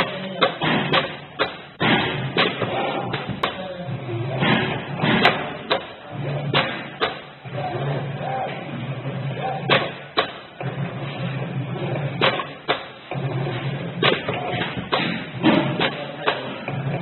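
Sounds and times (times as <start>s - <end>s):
sharp clicks and knocks: 0.0s - 3.6s, 4.4s - 7.3s, 9.7s - 13.3s, 13.9s - 17.0s.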